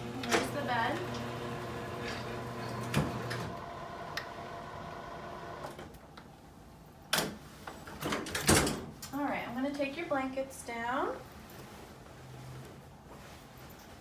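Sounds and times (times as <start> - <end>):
electric bed motor humming: 0.0 - 5.8.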